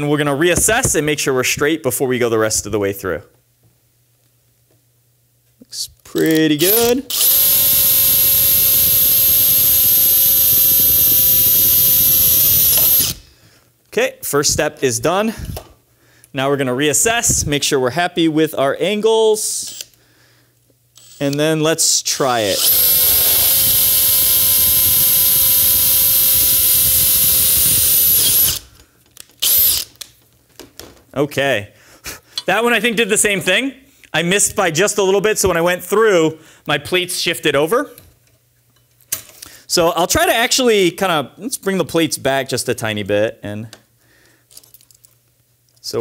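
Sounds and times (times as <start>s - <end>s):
drill boring through metal: 6.7s - 13.2s, 22.4s - 28.7s, 29.4s - 29.9s.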